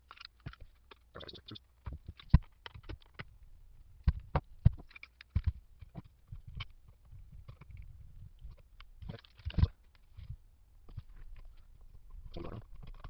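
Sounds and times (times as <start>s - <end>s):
sharp clicks and knocks on metal: 4.0s - 6.8s.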